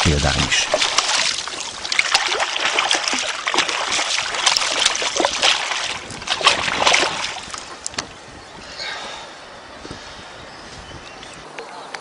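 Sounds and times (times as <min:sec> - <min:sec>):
fish thrashing water splashing: 0:00.0 - 0:08.0.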